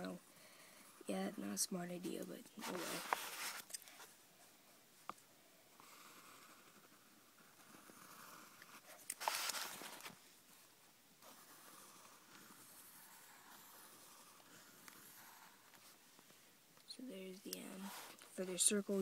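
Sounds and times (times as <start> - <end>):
pencil scratching on paper: 0.8 - 4.1, 5.8 - 10.2, 11.2 - 16.0, 17.2 - 19.0
pencil rubbing on paper: 2.6 - 3.7, 11.2 - 16.0, 17.6 - 19.0.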